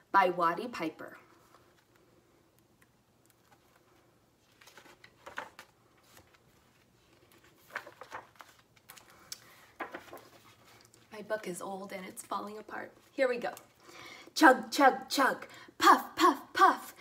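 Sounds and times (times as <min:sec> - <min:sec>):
book pages rustling: 0:01.2 - 0:11.4.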